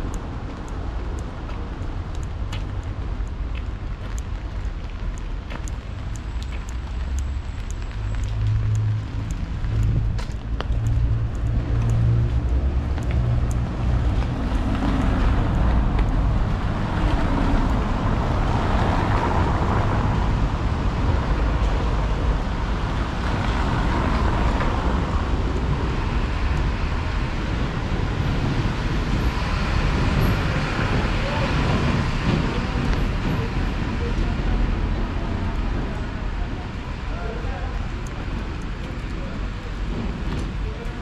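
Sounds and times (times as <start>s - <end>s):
low traffic rumble: 0.0s - 41.0s
tyres hissing on wet road: 10.9s - 41.0s.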